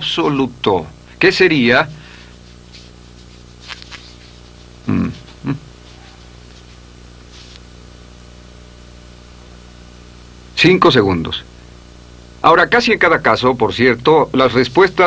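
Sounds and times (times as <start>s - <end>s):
low electrical hum: 0.0s - 15.0s
marker squeaking on paper: 2.4s - 7.7s.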